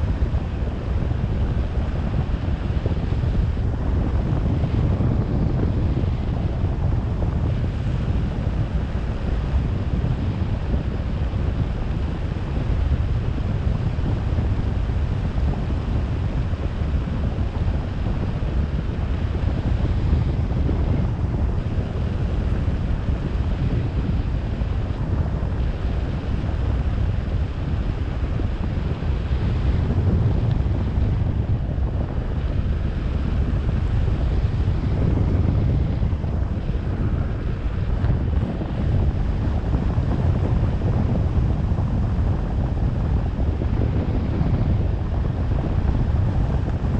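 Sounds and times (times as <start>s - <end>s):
wind buffeting microphone: 0.0s - 46.9s.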